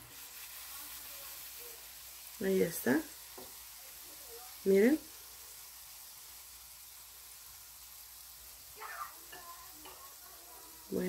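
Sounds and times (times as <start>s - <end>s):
hot oil sizzling: 0.0s - 11.0s
faint voice: 8.8s - 11.0s.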